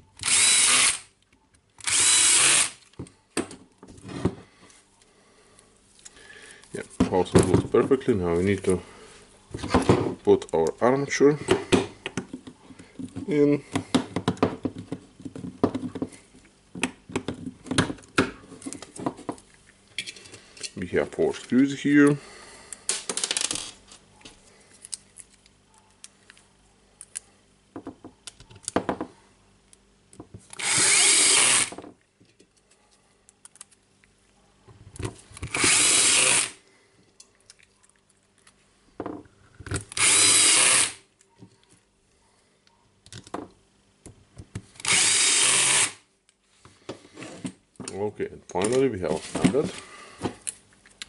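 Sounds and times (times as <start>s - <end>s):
cordless drill driving screws: 0.2s - 1.1s, 1.8s - 2.8s, 30.5s - 31.8s, 35.5s - 36.6s, 39.9s - 41.0s, 44.8s - 46.0s
light clicks and handling noises: 32.0s - 35.4s, 46.2s - 51.0s.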